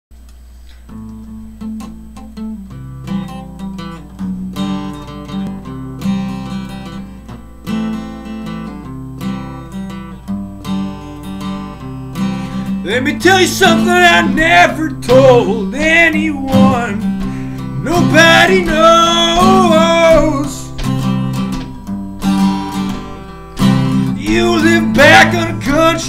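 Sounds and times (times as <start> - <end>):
acoustic guitar strumming: 0.6 - 26.0
steady low hum: 9.9 - 26.0.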